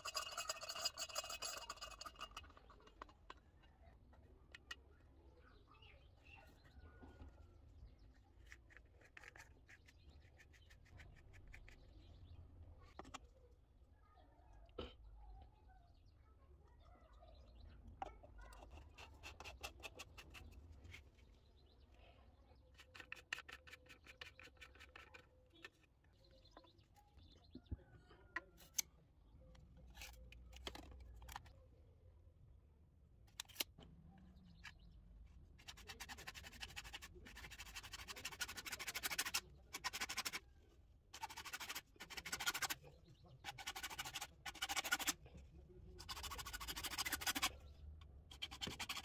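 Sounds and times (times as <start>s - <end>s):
plastic parts clicking and rattling: 29.9s - 31.6s
hacksaw cutting plastic pipe: 35.7s - 40.4s, 41.2s - 42.8s, 43.4s - 45.2s, 46.0s - 47.5s, 48.3s - 49.0s.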